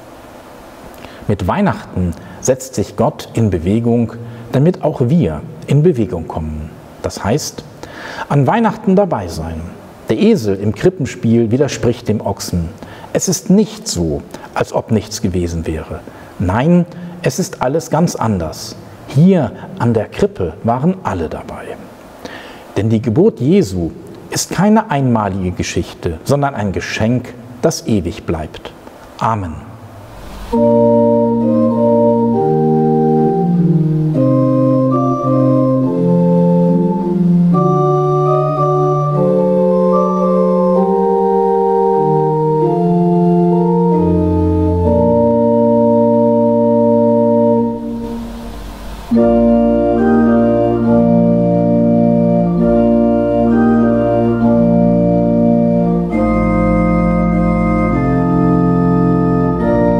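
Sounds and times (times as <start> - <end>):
pipe organ playing chords: 30.0 - 59.9.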